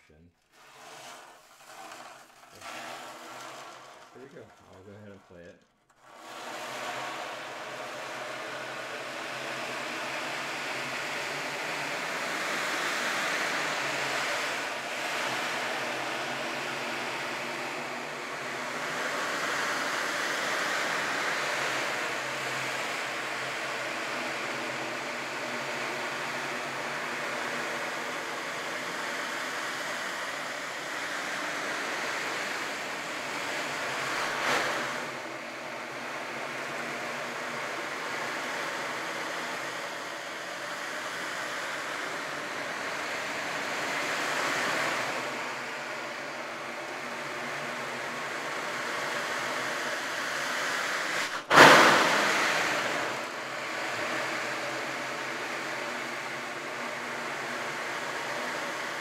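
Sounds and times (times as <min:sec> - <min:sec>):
ocean drum beads rolling: 0:00.5 - 0:04.8.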